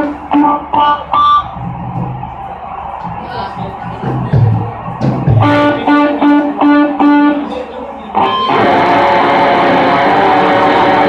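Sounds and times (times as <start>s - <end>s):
electric guitar chords: 0.0s - 1.7s, 5.2s - 11.0s.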